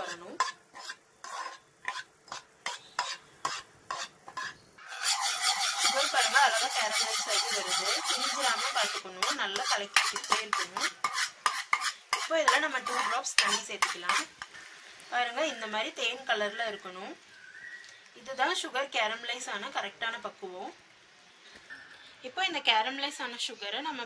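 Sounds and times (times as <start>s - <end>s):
spoon scraping steel pan: 0.0s - 14.6s
caramel bubbling and sizzling: 0.0s - 21.5s.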